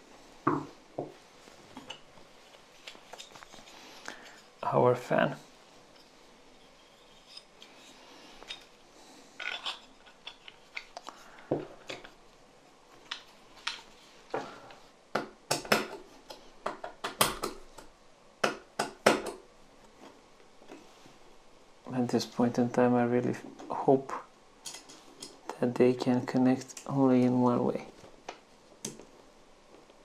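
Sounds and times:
small parts clicking and knocking: 9.4 - 12.2.

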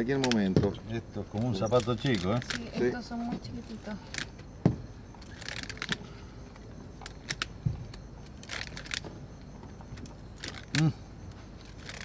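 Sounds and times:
clicks and rustles of bands: 1.3 - 2.9, 3.6 - 4.5, 5.1 - 12.0.

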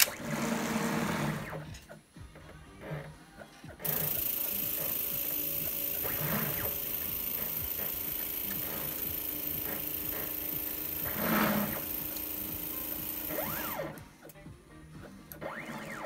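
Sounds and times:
stepper motors whirring: 3.8 - 14.1.

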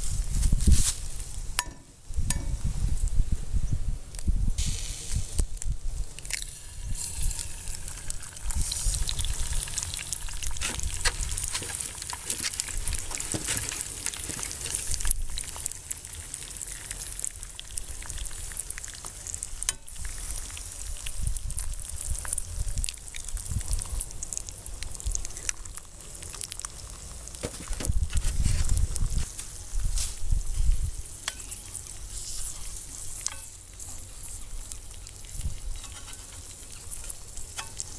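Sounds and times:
wind rumble on microphone: 0.0 - 11.6, 19.9 - 25.5, 27.6 - 31.1, 34.4 - 35.9
egg sizzling in grease: 4.5 - 37.9.

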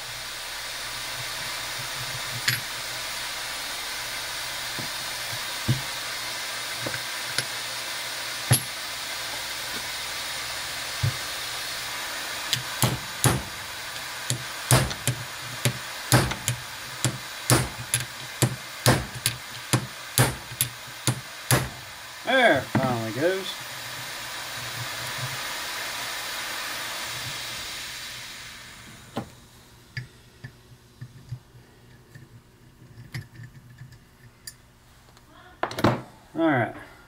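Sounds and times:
steady hiss: 0.0 - 35.5
hammer blows on metal: 12.8 - 13.6, 14.3 - 21.8.

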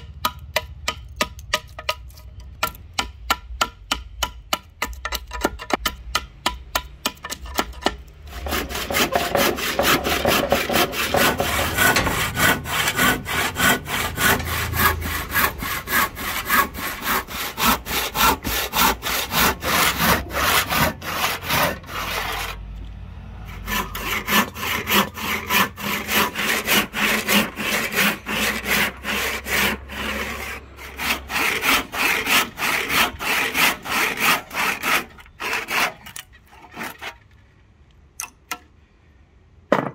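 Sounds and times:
hand saw cutting wood: 7.0 - 22.8, 23.5 - 37.2.

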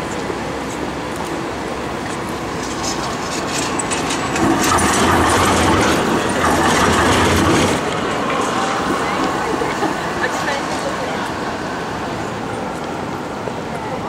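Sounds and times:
tram motors humming: 0.0 - 14.0
tram wheels clicking over track: 2.0 - 11.6.

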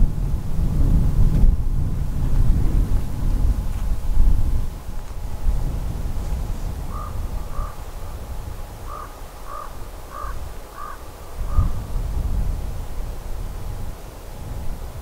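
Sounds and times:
wind rumble on microphone: 0.0 - 15.0
crow cawing: 6.9 - 7.9, 8.8 - 11.7.

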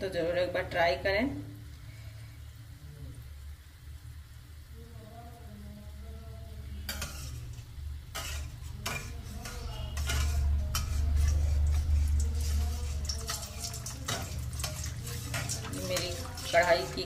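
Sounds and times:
metal spatula scraping a pan: 6.8 - 17.0.

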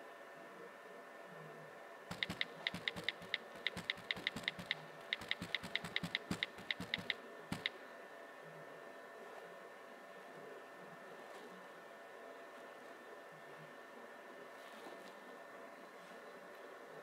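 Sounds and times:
on-screen keyboard clicks: 2.1 - 7.7.

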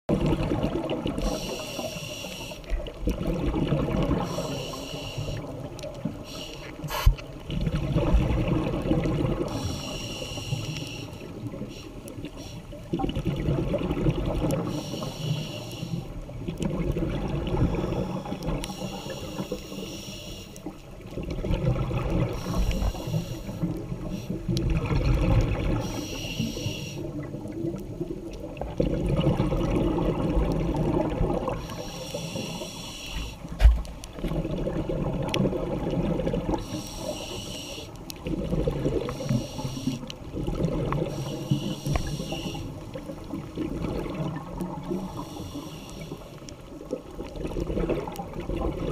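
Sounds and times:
bubbling exhales: 0.1 - 2.0, 6.8 - 9.9, 16.0 - 19.8, 21.1 - 37.4, 38.2 - 48.9
diver breathing through regulator: 1.2 - 2.8, 4.2 - 5.6, 6.2 - 7.2, 9.4 - 12.8, 14.7 - 16.2, 17.5 - 20.7, 22.3 - 24.5, 25.7 - 27.1, 31.5 - 33.6, 36.5 - 38.0, 38.8 - 40.1, 41.0 - 42.8, 45.0 - 46.5.

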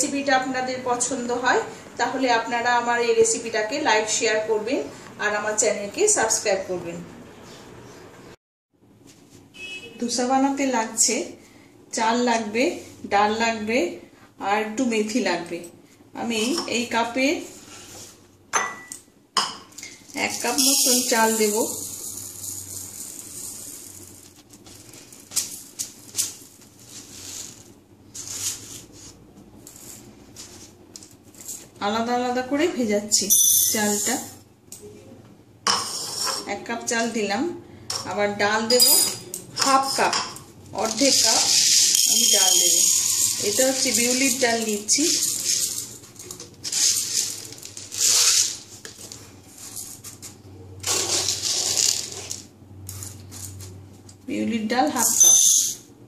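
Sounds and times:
grains clicking and rattling: 19.8 - 28.6, 40.8 - 50.1, 50.8 - 53.6
rice grains pouring: 20.6 - 25.2, 40.9 - 42.0, 42.7 - 46.0, 46.6 - 48.7.

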